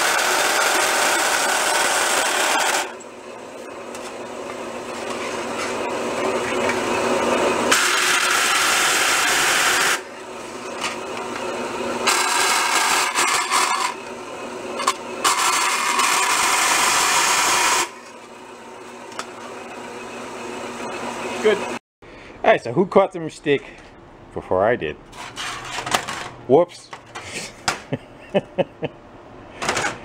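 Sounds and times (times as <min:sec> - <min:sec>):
bandsaw running idle: 0:00.0 - 0:03.0, 0:04.6 - 0:18.1
bandsaw cutting sheet metal: 0:00.0 - 0:03.1, 0:03.8 - 0:21.8.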